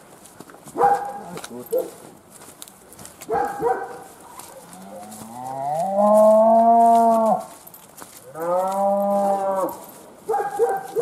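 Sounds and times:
cow mooing: 0:04.8 - 0:07.4, 0:08.3 - 0:09.8.

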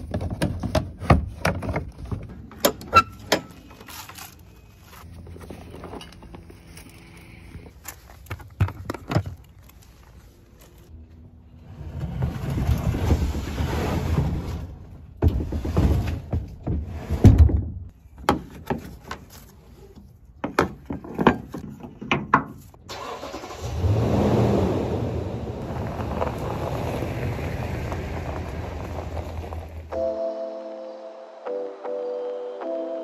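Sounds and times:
pickup truck engine rumble: 0:22.9 - 0:30.0.

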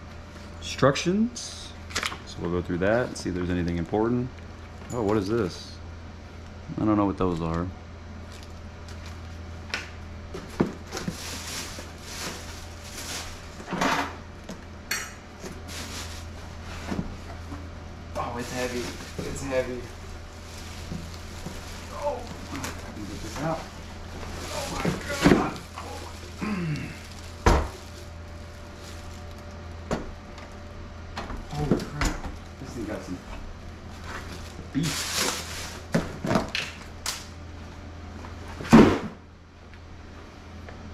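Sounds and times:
steady low hum: 0:00.0 - 0:40.9
plastic and cardboard rustling: 0:10.3 - 0:13.9, 0:15.4 - 0:29.6, 0:32.6 - 0:36.7
person grunting: 0:25.8 - 0:27.1
heavy thud on countertop: 0:27.4 - 0:27.7.

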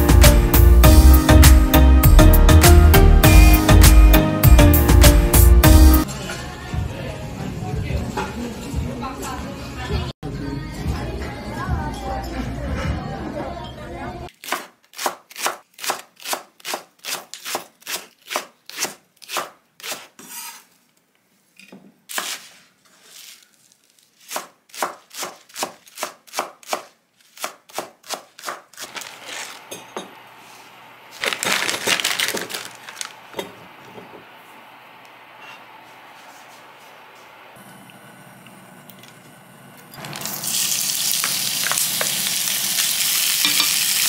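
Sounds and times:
plastic bag rustling: 0:22.4 - 0:24.3, 0:28.8 - 0:29.8, 0:30.4 - 0:33.4
knife chopping on wooden board: 0:24.3 - 0:28.9
frozen food tipped into tray: 0:31.2 - 0:33.2.

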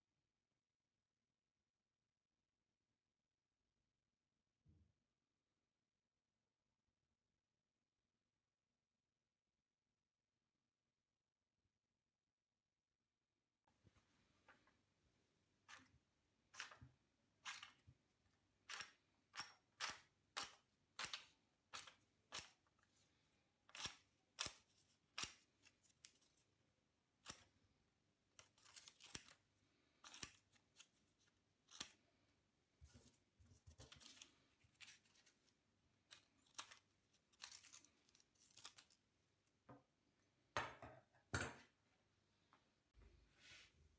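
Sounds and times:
scissors snipping paper card: 0:23.7 - 0:26.4, 0:28.3 - 0:29.4, 0:30.0 - 0:32.0, 0:36.0 - 0:39.0.

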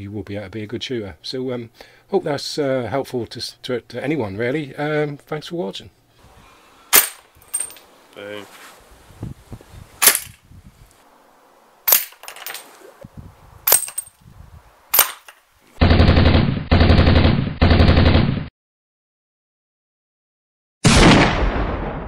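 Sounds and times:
air rifle shots: 0:06.9 - 0:07.3, 0:10.0 - 0:10.4
rapid machine-gun-like fire: 0:15.8 - 0:18.5.

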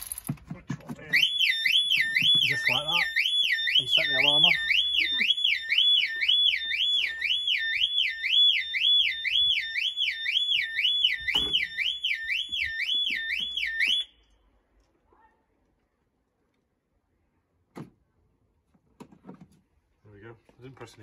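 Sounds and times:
car alarm siren wailing: 0:01.1 - 0:14.2.

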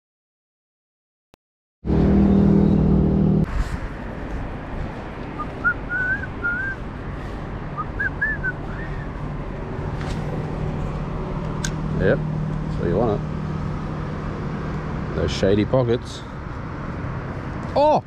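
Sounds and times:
low hum: 0:01.9 - 0:15.2
bird chirping whistles: 0:05.4 - 0:06.8, 0:07.8 - 0:09.1.

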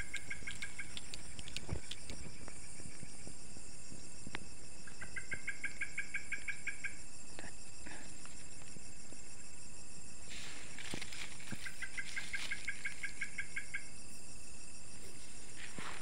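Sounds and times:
faint clicks: 0:00.0 - 0:02.6
night insects chirring: 0:00.0 - 0:16.0
rapid insect trill: 0:00.0 - 0:16.0.

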